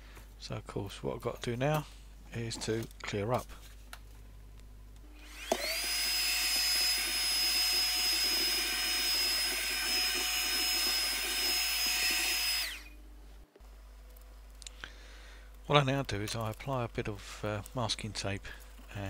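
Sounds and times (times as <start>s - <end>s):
handheld vacuum cleaner whine: 5.1s - 13.0s.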